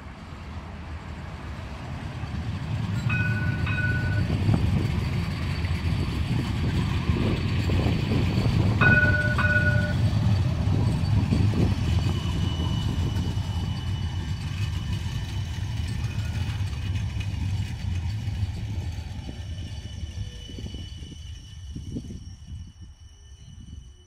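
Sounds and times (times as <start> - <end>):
tram rumbling past on rails: 0.0 - 24.0
short high tone: 3.1 - 4.4, 8.8 - 10.0.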